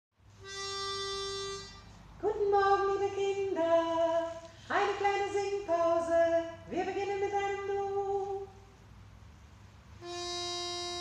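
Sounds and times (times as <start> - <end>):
woman singing: 2.2 - 8.6.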